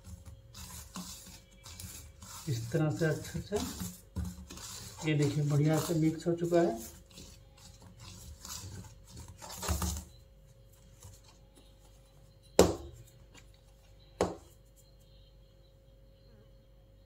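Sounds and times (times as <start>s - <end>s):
fingers rustling dry flour: 0.0s - 12.0s.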